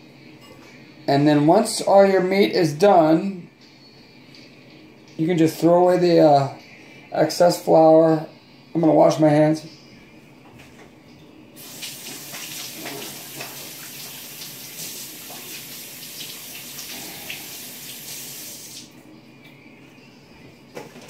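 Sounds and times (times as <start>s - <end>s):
faucet running: 11.6s - 18.9s.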